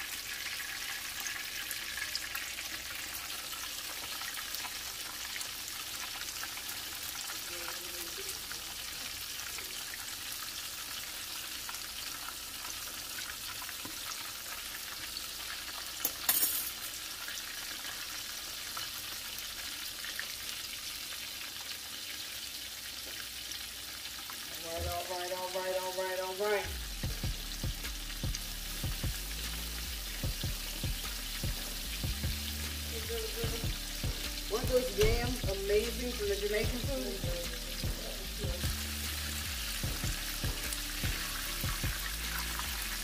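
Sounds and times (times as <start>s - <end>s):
food deep-frying in hot oil: 0.0s - 43.0s.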